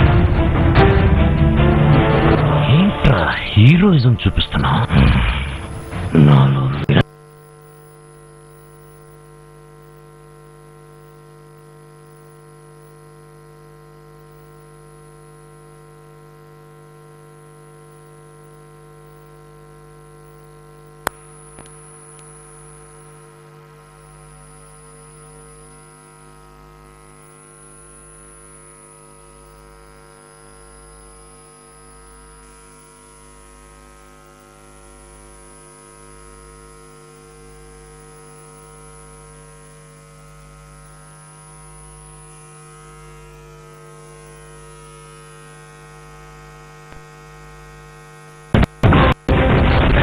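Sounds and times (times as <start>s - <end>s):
electrical mains hum: 0.0s - 50.0s.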